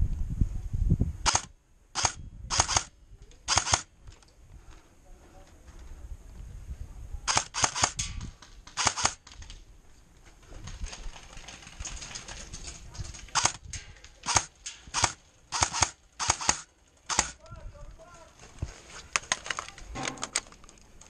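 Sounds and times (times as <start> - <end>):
airsoft rifle shots: 1.2 - 2.9, 3.5 - 3.9, 7.3 - 9.3, 14.2 - 17.4.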